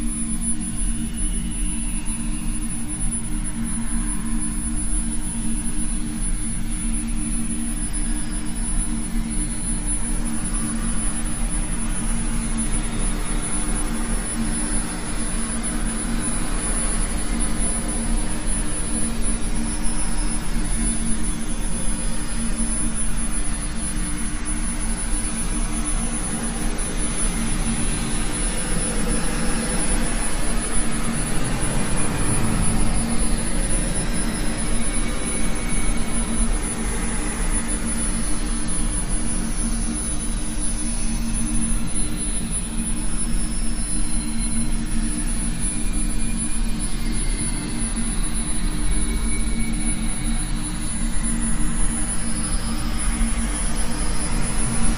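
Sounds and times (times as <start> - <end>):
steady rumbling drone: 25.0 - 37.4.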